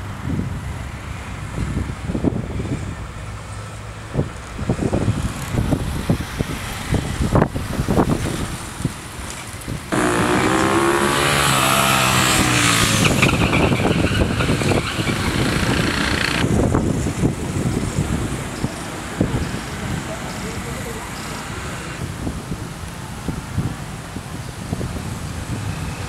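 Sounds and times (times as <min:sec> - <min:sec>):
low street rumbles: 0:00.0 - 0:26.0
motor vehicle passing close: 0:09.9 - 0:22.1.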